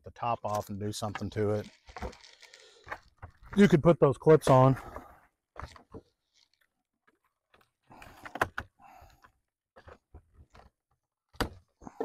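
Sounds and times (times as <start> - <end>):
packaging rustle: 0.6 - 3.6, 5.6 - 6.7.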